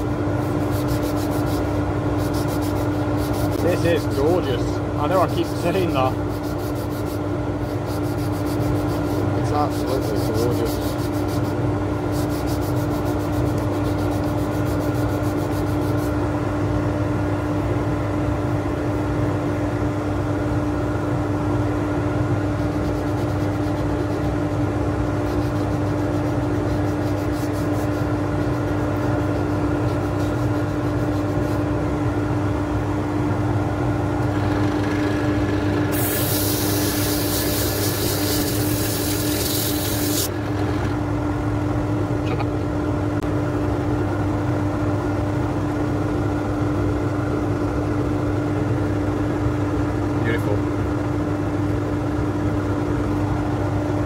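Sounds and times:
lathe motor hum: 0.0s - 16.2s, 22.2s - 41.6s
sandpaper hissing on spinning wood: 0.0s - 16.2s, 22.5s - 31.7s, 35.0s - 40.3s.

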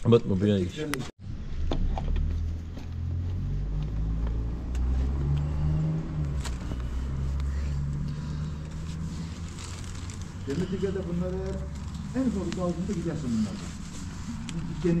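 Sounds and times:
engine running: 1.6s - 15.0s
plastic sheeting crinkling: 8.6s - 15.0s.

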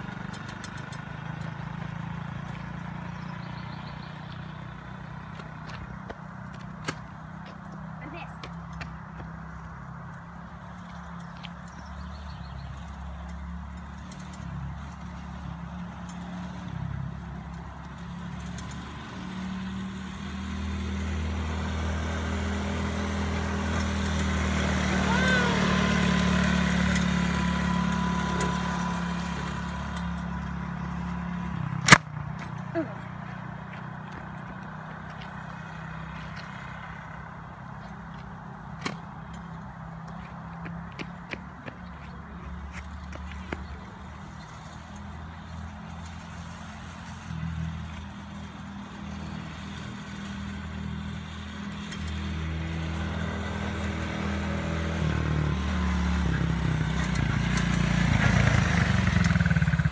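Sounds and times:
quad bike engine running: 0.0s - 59.9s.

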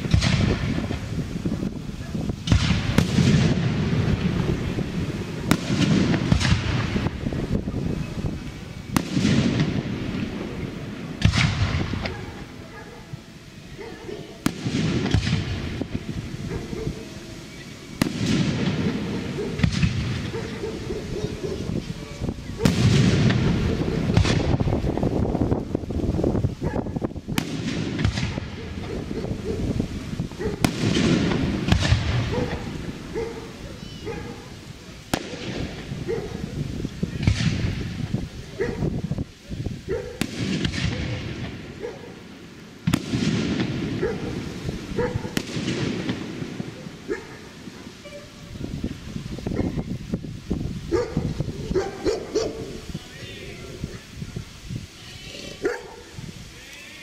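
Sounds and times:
firework crackling and rumble: 0.0s - 57.0s
firework shells bursting: 2.2s - 12.6s, 27.2s - 33.6s, 36.8s - 38.3s, 40.2s - 48.0s.

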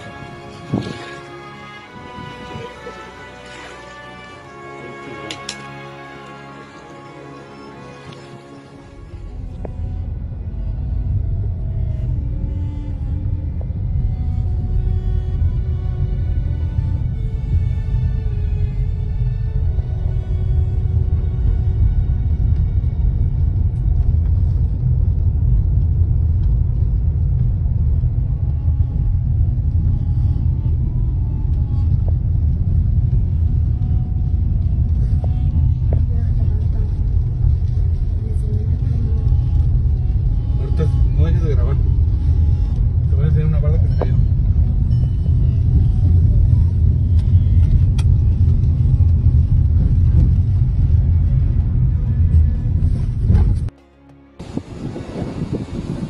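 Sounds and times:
wind roaring: 0.0s - 53.7s, 54.3s - 56.0s
car driving rumble from cabin: 8.9s - 53.7s.

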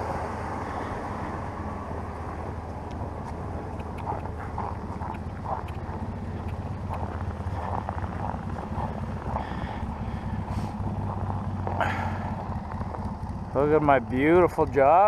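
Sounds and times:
vehicle engine idling: 0.0s - 15.0s.

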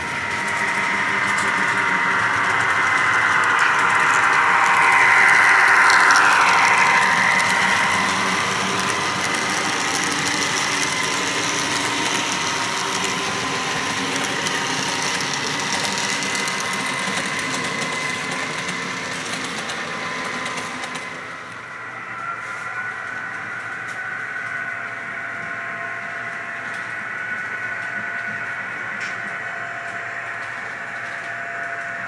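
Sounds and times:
model train running past: 0.0s - 32.0s.

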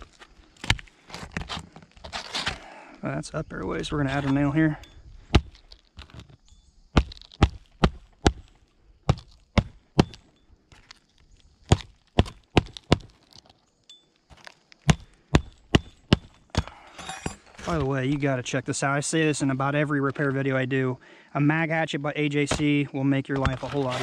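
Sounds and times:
hatchet hammering nails: 14.9s - 17.4s.

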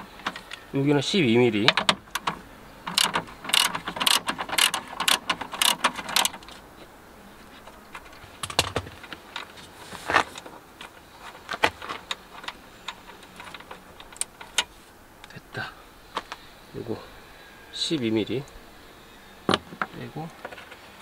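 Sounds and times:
ratchet wrench clicking: 2.9s - 6.4s.

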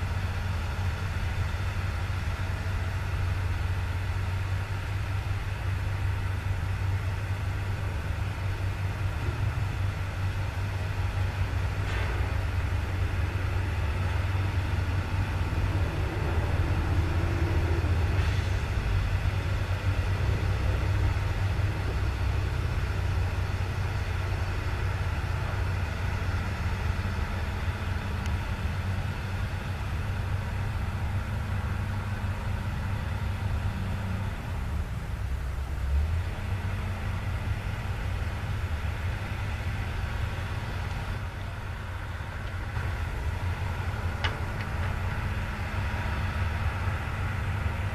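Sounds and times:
excavator diesel engine running: 0.0s - 47.9s.

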